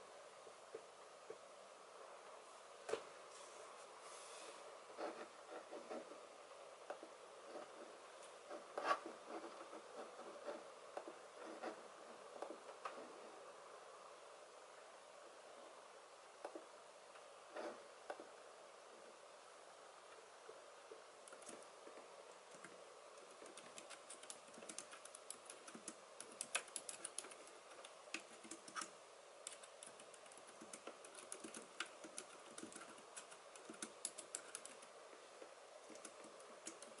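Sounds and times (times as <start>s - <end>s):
keyboard typing clicks: 23.4s - 34.9s.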